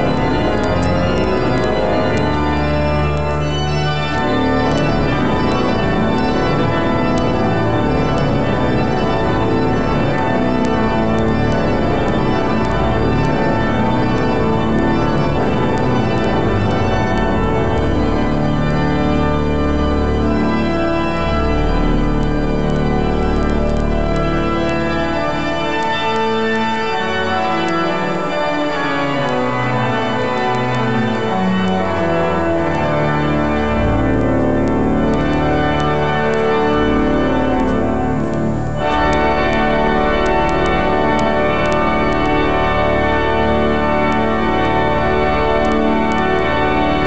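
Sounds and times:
deep organ pedal bass notes: 0.0s - 47.0s
pipe organ playing chords: 0.0s - 47.0s.

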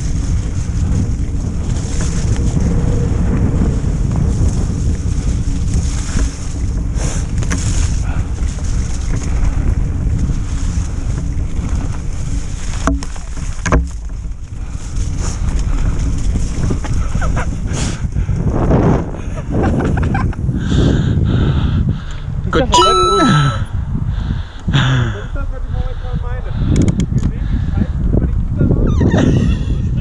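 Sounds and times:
tyres rumbling on dirt trail: 0.0s - 30.0s
wind buffeting microphone: 0.0s - 30.0s
sharp knocks of bike jolting: 11.2s - 17.4s.

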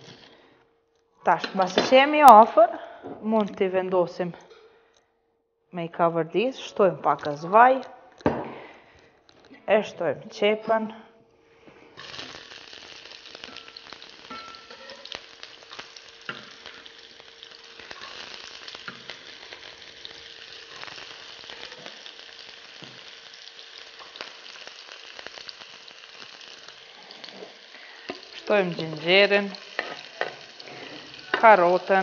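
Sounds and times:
onion sizzling in oil: 0.0s - 0.4s, 12.0s - 32.0s.

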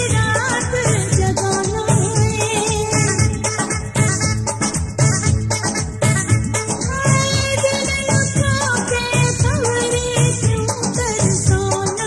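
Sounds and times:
steady drum beat: 0.0s - 12.0s.

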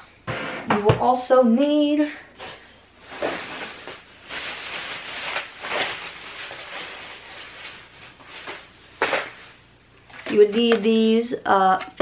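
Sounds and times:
rustling and handling: 2.4s - 11.0s.

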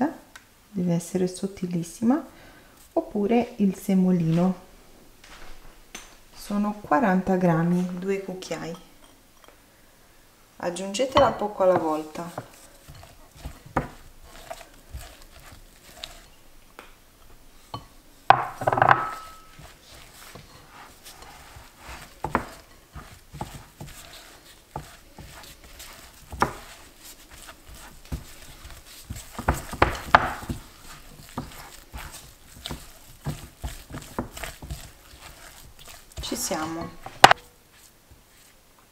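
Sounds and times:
spatula scraping glass bowl: 11.0s - 16.4s, 17.7s - 37.4s.

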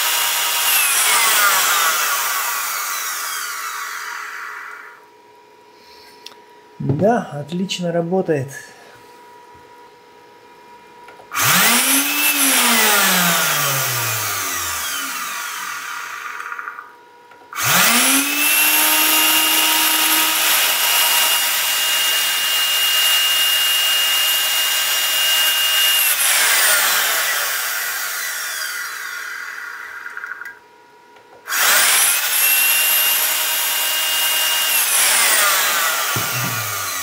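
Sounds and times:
electric motor whine: 0.0s - 5.1s, 11.3s - 30.5s, 31.5s - 37.0s.

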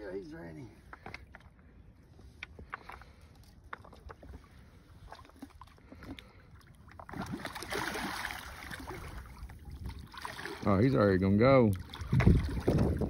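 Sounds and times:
faint water lapping: 0.0s - 13.0s
water splashing and swirling: 2.9s - 13.0s.

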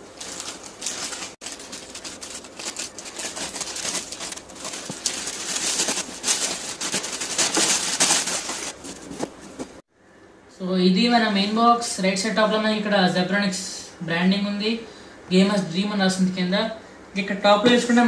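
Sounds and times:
plastic mailer bag crinkling: 0.0s - 9.3s.

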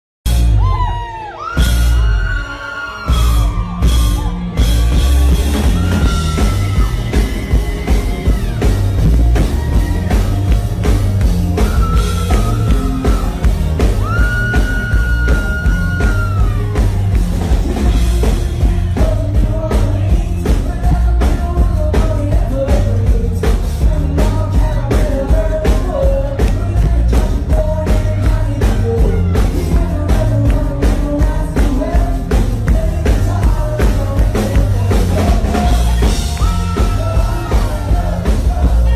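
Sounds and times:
drum kit beat: 3.1s - 38.9s
man singing: 11.6s - 38.9s.

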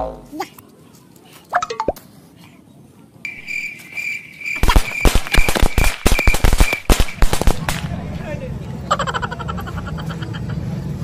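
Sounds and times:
firecrackers banging: 4.6s - 8.4s.

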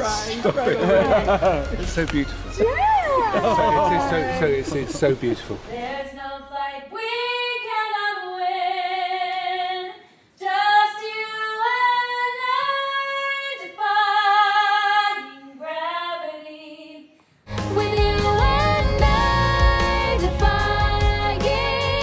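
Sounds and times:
woman singing with vibrato: 5.7s - 22.0s.

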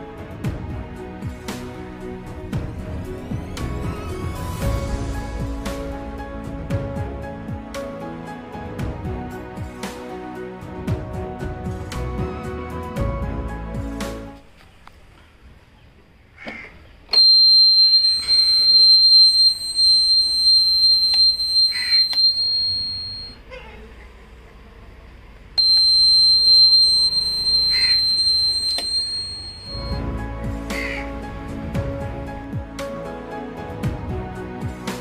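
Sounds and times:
high-pitched buzzer tone: 17.2s - 23.4s, 25.6s - 30.0s.

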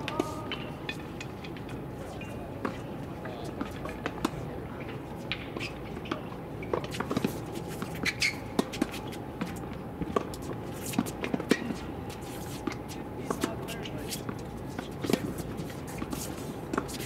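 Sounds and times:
faint background hum: 0.0s - 17.0s
tennis balls struck and bouncing: 0.0s - 17.0s.

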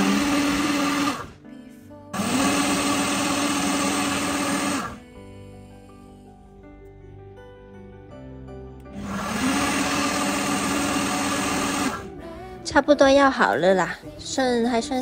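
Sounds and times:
blender motor blending: 0.0s - 1.4s, 2.2s - 5.0s, 8.9s - 12.1s
faint background music: 0.0s - 15.0s.

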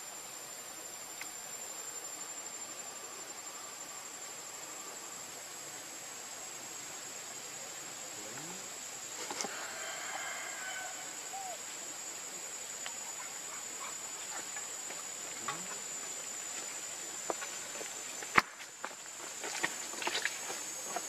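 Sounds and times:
small ticks: 1.2s - 1.4s
high-pitched insect drone: 1.4s - 21.0s.

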